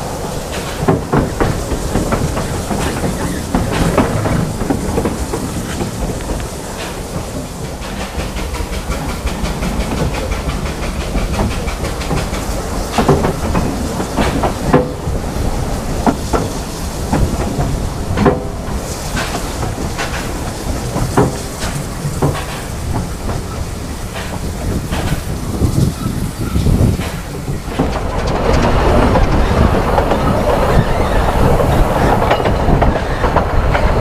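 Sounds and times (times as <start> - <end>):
train wheels rumbling on rail: 0.0 - 34.0.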